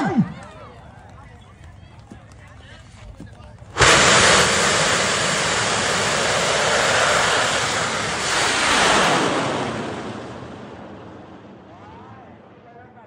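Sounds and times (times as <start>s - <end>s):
rocket rushing noise: 3.8s - 12.0s.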